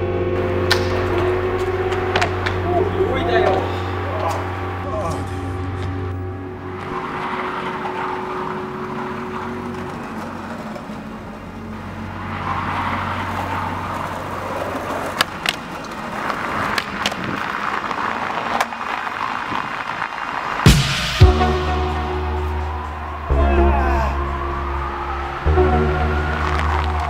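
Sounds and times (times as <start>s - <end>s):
skateboard wheels rolling on paving: 0.0s - 27.0s
skateboard clacks: 0.6s - 2.7s, 6.8s - 21.0s.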